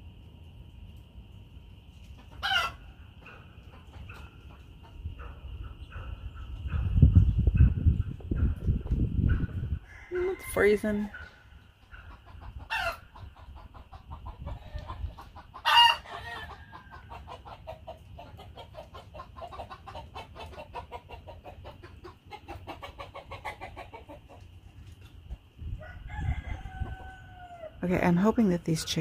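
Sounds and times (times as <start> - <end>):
chickens clucking: 1.7 - 29.0
chicken squawks: 2.3 - 4.6, 9.3 - 24.4.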